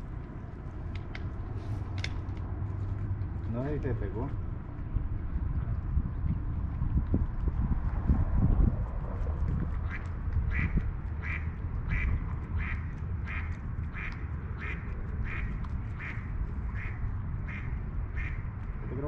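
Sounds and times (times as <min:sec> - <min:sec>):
low rumble: 0:00.0 - 0:19.0
duck quacking: 0:09.8 - 0:18.4.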